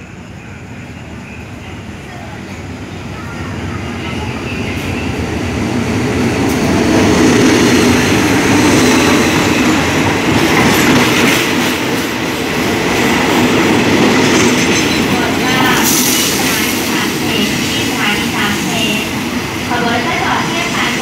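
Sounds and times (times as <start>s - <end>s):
train wheels clattering over rails: 6.0s - 21.0s.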